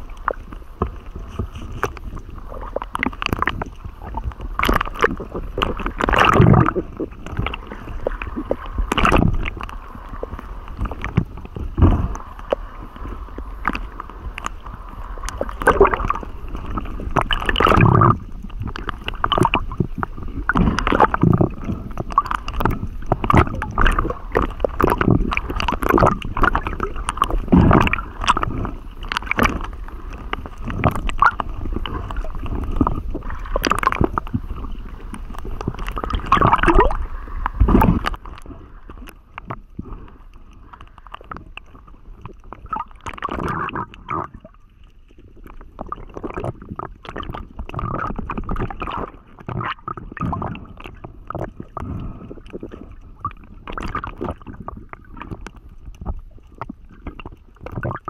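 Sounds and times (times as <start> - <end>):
water gurgling against camera housing: 0.0 - 58.0.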